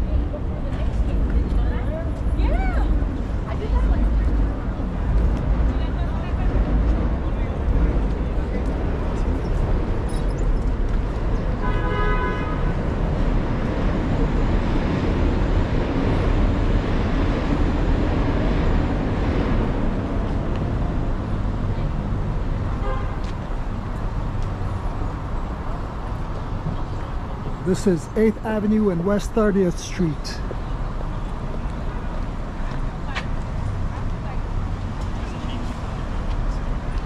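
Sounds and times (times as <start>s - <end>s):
rumble of passing traffic: 0.0s - 37.0s
car horn honk: 11.6s - 12.6s, 22.8s - 23.2s.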